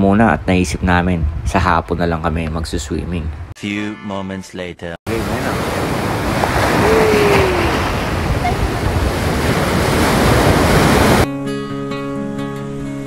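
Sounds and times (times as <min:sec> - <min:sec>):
wind buffeting microphone: 0:00.6 - 0:01.9, 0:05.1 - 0:11.3
surf breaking and washing: 0:05.1 - 0:11.3.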